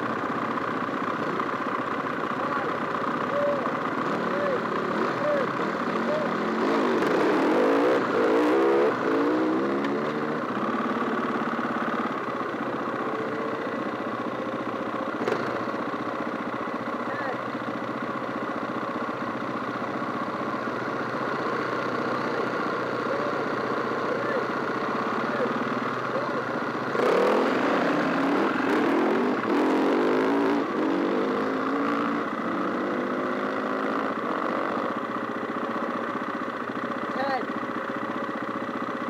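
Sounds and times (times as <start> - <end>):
dirt bike engines idling: 0.0 - 39.0
dirt bike engine revving: 2.6 - 15.9, 20.4 - 35.1.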